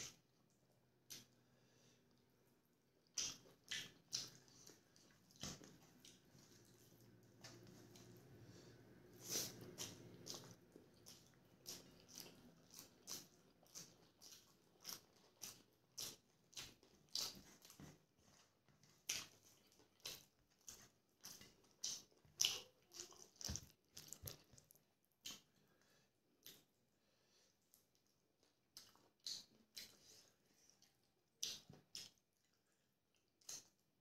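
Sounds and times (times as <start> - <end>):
close chewing mouth clicks: 3.0 - 8.2, 9.2 - 26.8, 27.6 - 33.8.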